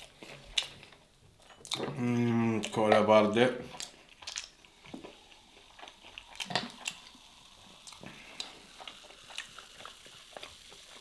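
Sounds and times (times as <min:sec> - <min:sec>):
cola pouring and fizzing: 0:02.7 - 0:11.0.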